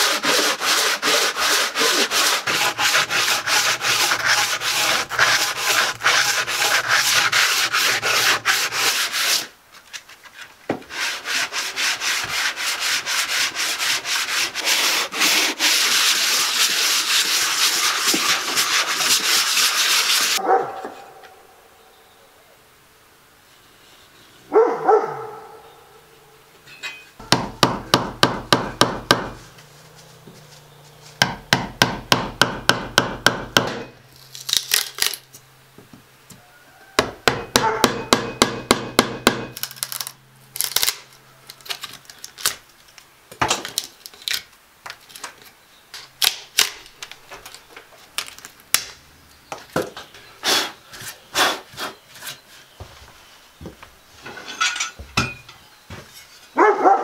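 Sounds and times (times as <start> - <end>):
hammer striking chisel into wood: 27.3 - 29.4, 31.2 - 33.9, 37.0 - 39.6.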